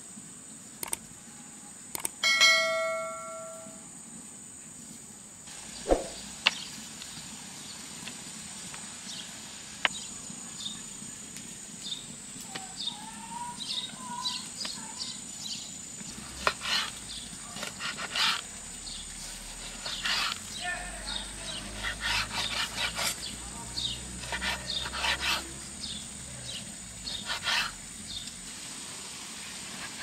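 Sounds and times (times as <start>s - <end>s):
high insect drone: 8.4s - 28.6s.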